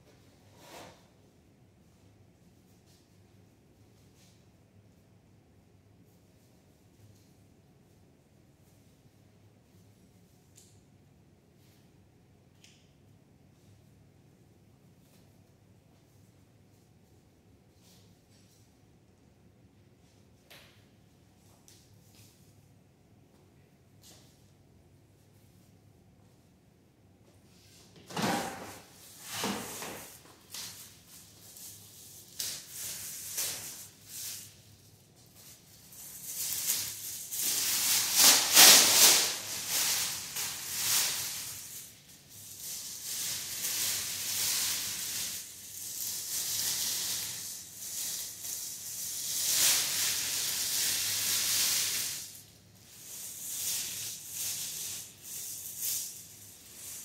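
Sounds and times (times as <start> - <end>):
plastic gown crinkling: 28.8 - 57.0.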